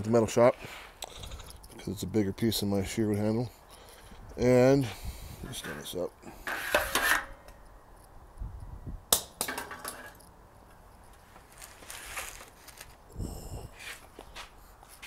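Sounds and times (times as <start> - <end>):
faint scraping and handling: 11.0 - 13.0.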